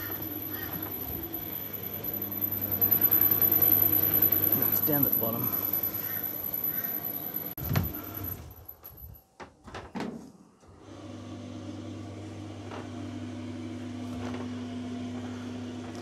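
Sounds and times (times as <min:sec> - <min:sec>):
high-pitched squeaking: 0:00.0 - 0:08.0
clothes dryer drum humming: 0:00.0 - 0:09.1, 0:10.8 - 0:16.0.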